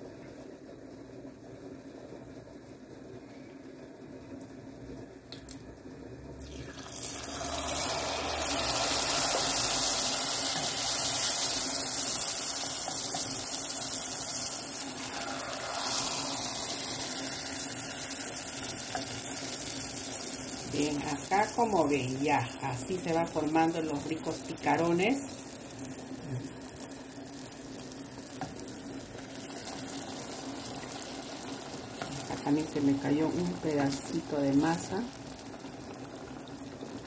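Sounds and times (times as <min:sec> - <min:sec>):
dough deep-frying in hot oil: 0:00.0 - 0:37.0.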